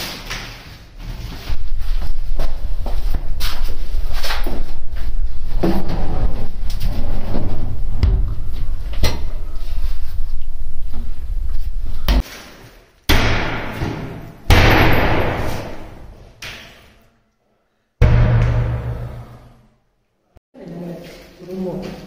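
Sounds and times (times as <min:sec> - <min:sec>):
low rumble: 0:01.5 - 0:12.2
loud bangs: 0:13.1 - 0:16.2, 0:18.0 - 0:19.6.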